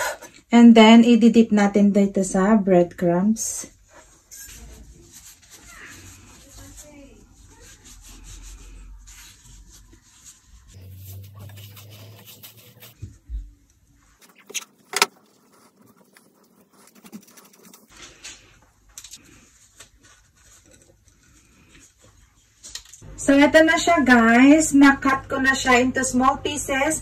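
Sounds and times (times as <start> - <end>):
hands rubbing bread dough: 3.8 - 13.1, 14.0 - 18.6, 19.2 - 22.6.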